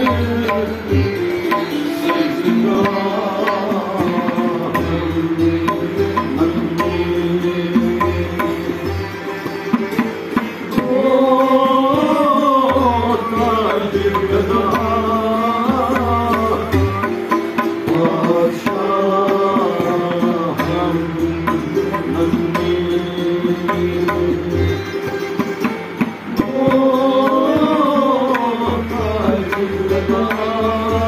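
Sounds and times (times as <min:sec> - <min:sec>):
long-necked stringed instrument: 0:00.0 - 0:31.0
santoor: 0:00.0 - 0:31.0
tabla beat: 0:00.0 - 0:31.0.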